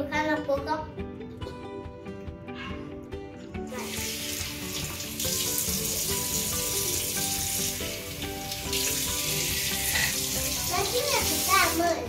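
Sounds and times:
background music: 0:00.0 - 0:12.0
tap water running into sink: 0:03.8 - 0:12.0.

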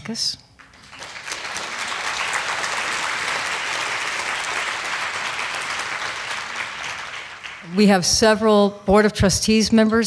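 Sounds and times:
audience applauding: 0:00.6 - 0:08.0.

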